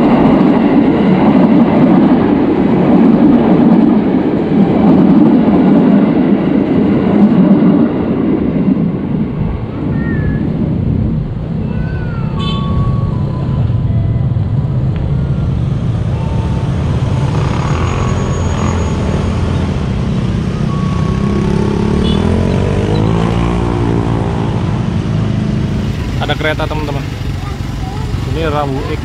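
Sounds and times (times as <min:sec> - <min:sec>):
low traffic rumble: 0:00.0 - 0:29.0
motorcycle engines revving: 0:12.3 - 0:29.0
motorcycle engines idling: 0:25.6 - 0:29.0.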